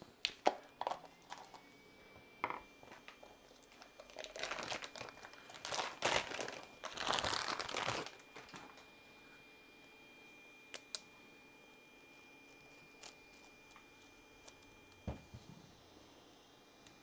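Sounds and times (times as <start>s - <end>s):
plastic wrapping tearing and crinkling: 0.2s - 1.6s, 2.9s - 8.8s.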